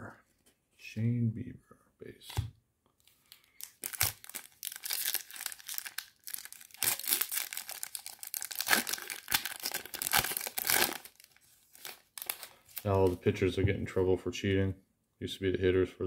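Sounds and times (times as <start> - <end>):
card pack wrapper ripping: 3.3 - 13.2.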